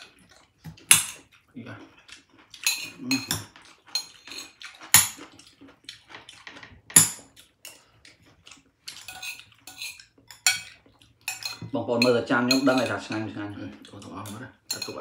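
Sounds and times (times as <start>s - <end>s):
cutlery clinking on a plate: 0.7s - 1.3s, 2.6s - 5.3s, 6.3s - 7.8s, 8.9s - 13.4s, 14.0s - 15.0s.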